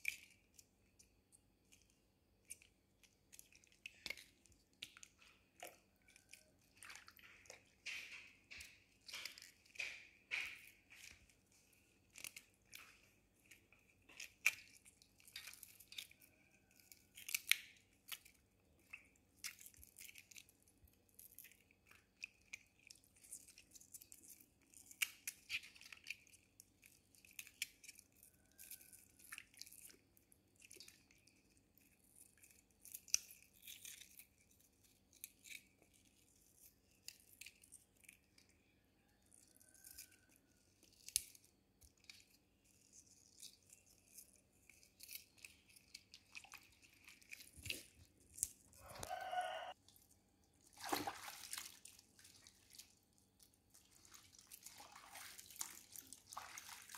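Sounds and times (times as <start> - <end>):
onion layers crackling and squeaking: 0.0 - 56.9
water splashing in basin: 50.6 - 52.9, 53.8 - 56.9
water swishing: 50.6 - 52.9.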